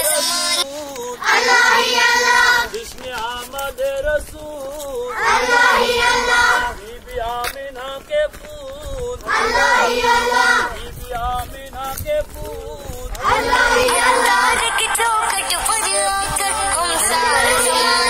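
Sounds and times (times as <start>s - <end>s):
children chanting in unison: 1.2s - 2.8s, 5.1s - 6.8s, 9.3s - 10.8s, 13.2s - 14.7s, 15.9s - 18.0s.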